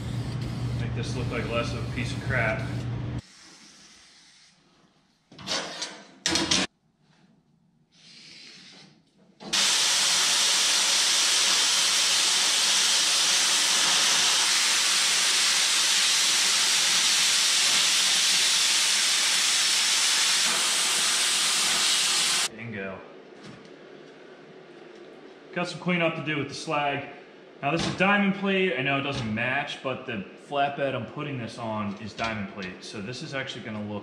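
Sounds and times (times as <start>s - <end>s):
plasma cutter hissing: 9.5s - 22.5s.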